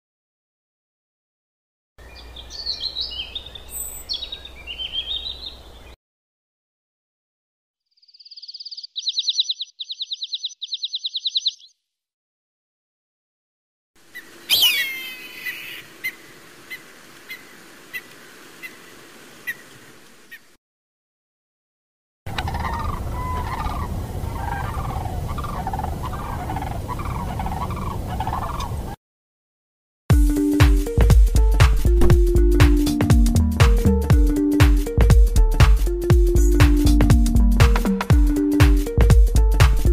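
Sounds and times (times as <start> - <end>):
songbird trilling high chirps: 2.0 - 6.0, 7.9 - 11.8, 14.2 - 16.2
duck calling: 14.5 - 16.2, 22.3 - 28.8.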